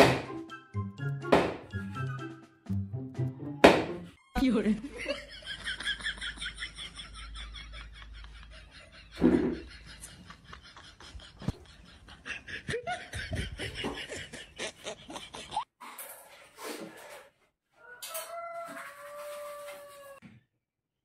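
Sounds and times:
person laughing: 0:04.8 - 0:15.6.

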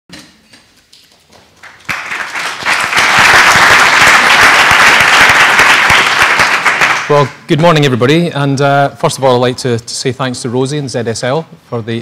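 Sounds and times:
audience applauding: 0:01.6 - 0:07.3.

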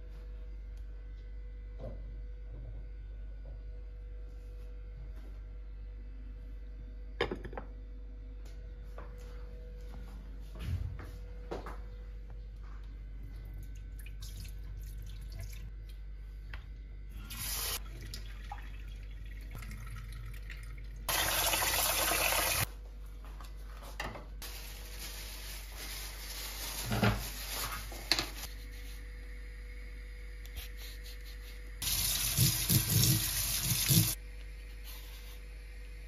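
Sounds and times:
plastic bag rustling: 0:24.4 - 0:28.5.

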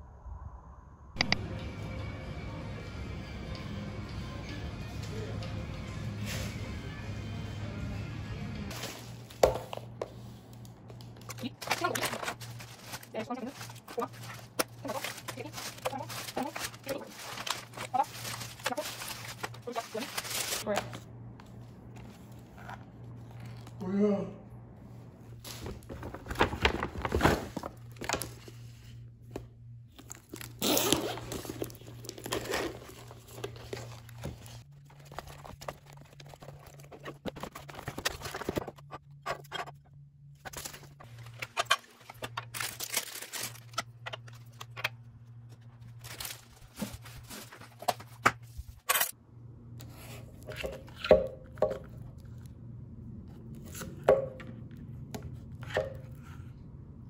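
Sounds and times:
low steady hum: 0:00.0 - 0:57.0
packaging tearing and crinkling: 0:11.5 - 0:20.6, 0:30.0 - 0:38.6, 0:40.5 - 0:44.8.

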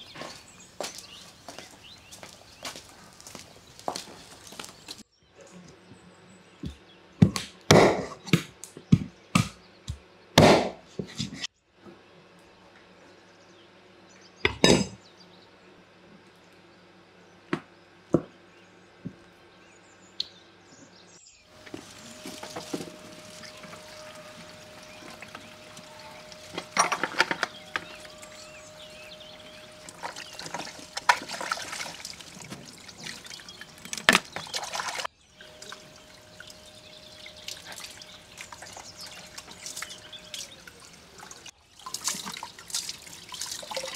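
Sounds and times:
tap water running into bowl: 0:21.6 - 0:43.9.

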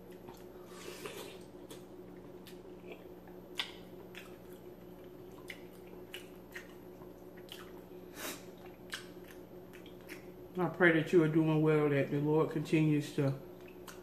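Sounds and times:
wet chewing and mouth smacks: 0:00.0 - 0:10.4, 0:13.6 - 0:14.0
faint steady hum: 0:00.0 - 0:14.0.

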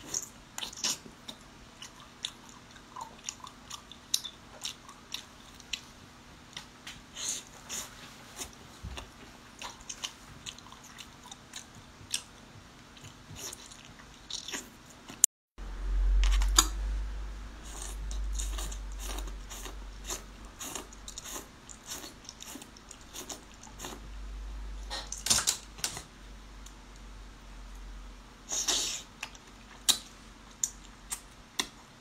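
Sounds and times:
low rumble: 0:15.6 - 0:21.2, 0:24.0 - 0:24.9
chewing and sucking: 0:17.6 - 0:24.0.

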